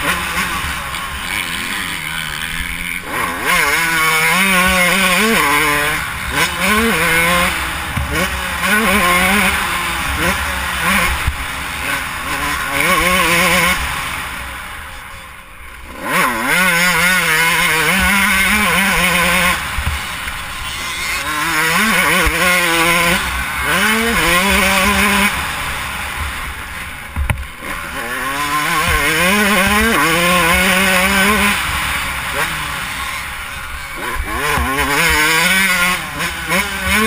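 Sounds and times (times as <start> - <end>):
dirt bike engine revving: 0.0 - 37.0.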